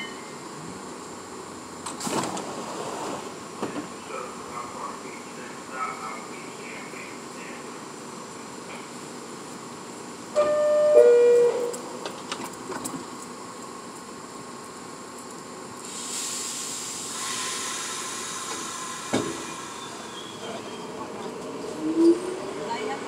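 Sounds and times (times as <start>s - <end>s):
train doors clicking shut: 1.8s - 2.6s, 3.6s - 4.0s, 11.4s - 13.2s, 18.4s - 19.7s
two-note door chime: 10.4s - 11.7s
pneumatic air hiss: 15.8s - 20.4s.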